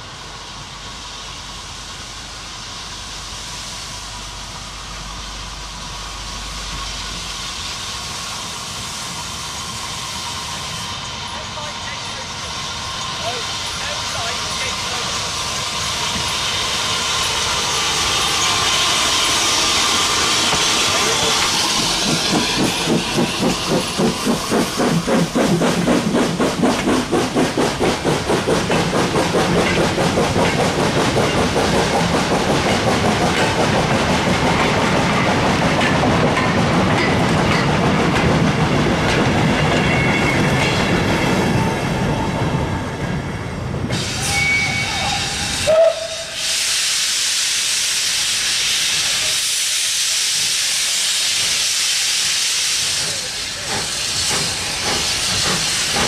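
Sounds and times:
steam hissing: 0.0s - 56.0s
steam locomotive chuffing: 0.0s - 56.0s
train wheels clicking over rails: 11.6s - 43.2s, 46.4s - 56.0s.

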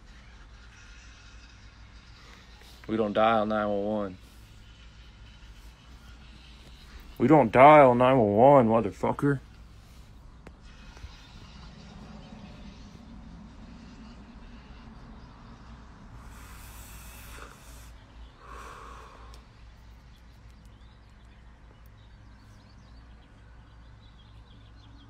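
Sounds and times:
faint background hum: 0.0s - 25.0s
person exhaling smoke: 16.2s - 19.5s.

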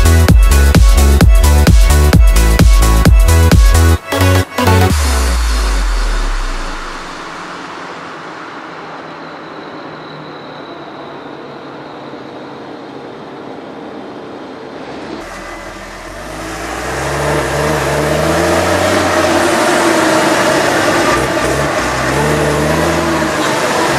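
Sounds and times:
tractor engine inside cab: 14.8s - 23.9s.

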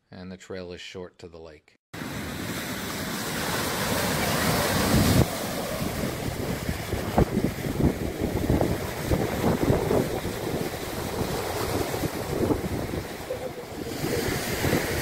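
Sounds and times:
waves washing up a pebbly beach: 2.0s - 15.0s
wind buffeting microphone: 4.8s - 15.0s.

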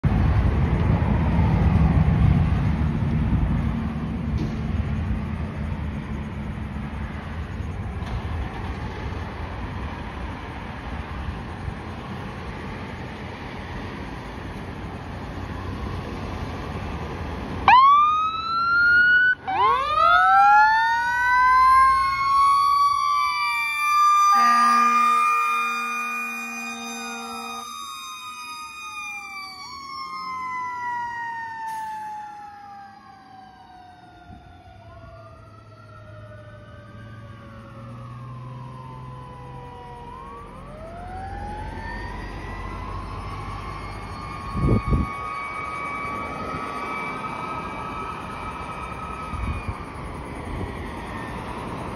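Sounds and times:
engine rumble: 0.0s - 51.9s
fire engine siren wailing: 8.3s - 51.9s
horn blasts: 24.2s - 27.8s.

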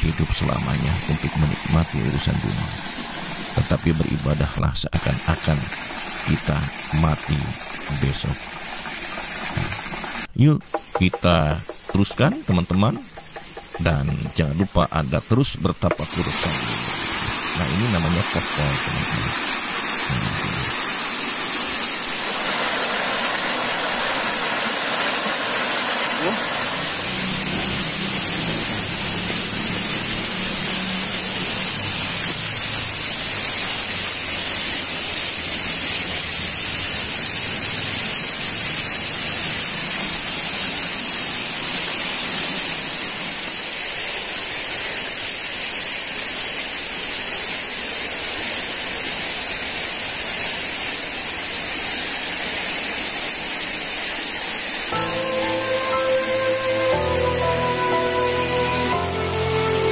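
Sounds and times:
running water splashing: 5.0s - 59.9s.

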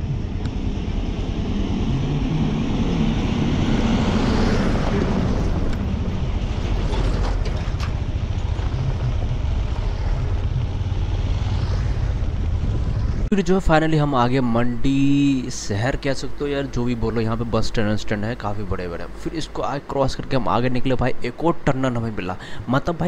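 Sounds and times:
wind rush over microphone: 0.0s - 13.3s
motorcycle engine running: 7.6s - 13.3s.

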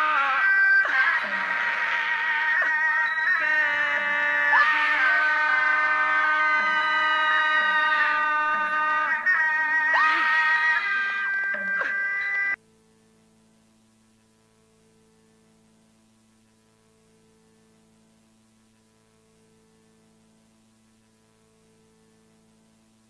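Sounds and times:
loud distorted sliding tone: 0.0s - 12.6s
faint electrical hum: 0.0s - 23.0s.

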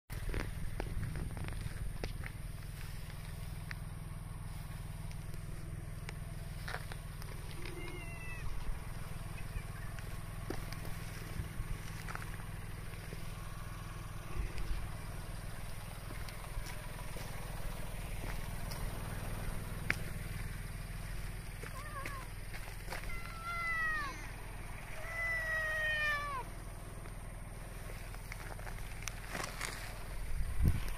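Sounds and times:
low rumble: 0.2s - 30.9s
cat chirping: 7.6s - 8.6s.

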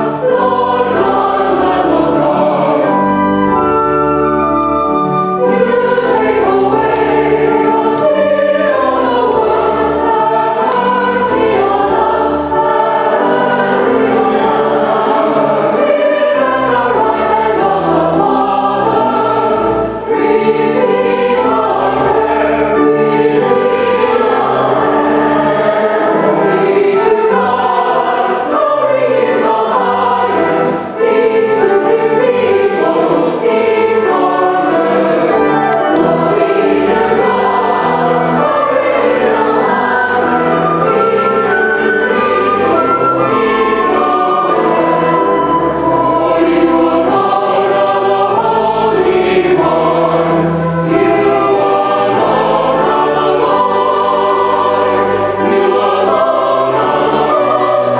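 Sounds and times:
choir and congregation singing hymn: 0.0s - 57.9s
low held accompaniment: 0.0s - 57.9s.

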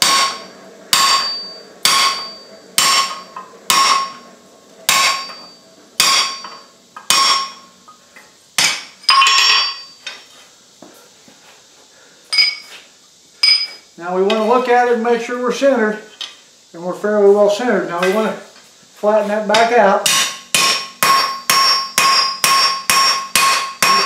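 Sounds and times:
hammer striking steel with metallic ring: 0.0s - 4.2s, 4.9s - 7.6s, 8.6s - 10.2s, 19.6s - 24.0s
metal clank: 0.0s - 4.2s, 4.9s - 8.0s, 8.6s - 10.3s.

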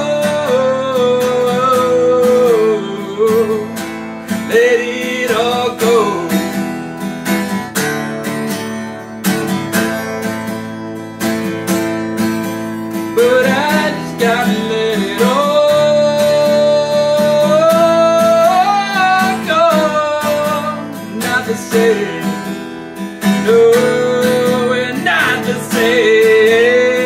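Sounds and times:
man singing: 0.0s - 6.7s, 12.9s - 27.0s
acoustic guitar strumming: 0.0s - 27.0s.

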